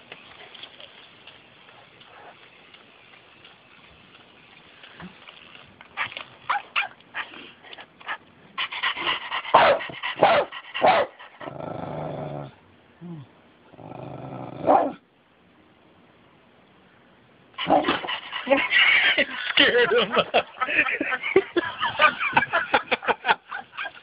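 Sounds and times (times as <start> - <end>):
small dog barking: 9.5 - 11.2, 14.6 - 15.0
dog growling: 11.4 - 12.6, 13.7 - 15.0.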